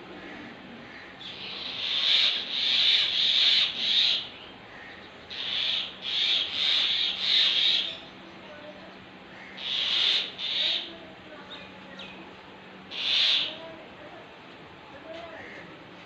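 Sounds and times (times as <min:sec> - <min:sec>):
mynas harsh alarm calls: 0:00.2 - 0:08.1, 0:09.4 - 0:11.0, 0:12.9 - 0:13.6.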